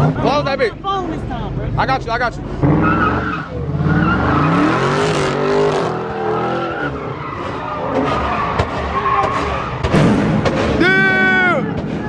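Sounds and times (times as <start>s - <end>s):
car engine revving hard: 2.4s - 10.8s
tyres screeching: 2.5s - 10.0s.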